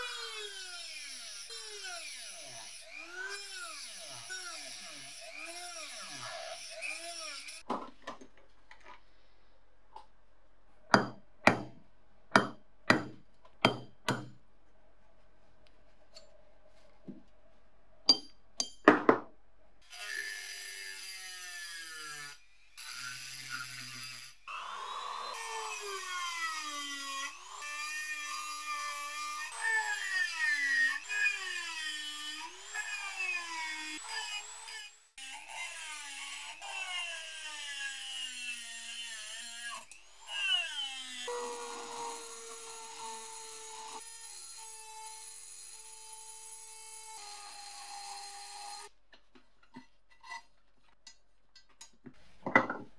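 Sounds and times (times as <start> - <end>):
rotary tool cutting steel: 0.0 - 7.6, 19.9 - 48.9.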